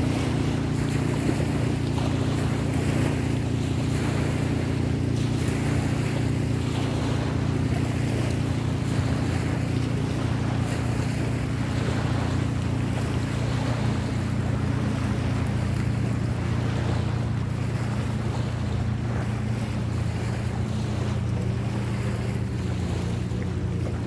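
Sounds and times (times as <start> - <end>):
low engine drone: 0.0 - 24.0.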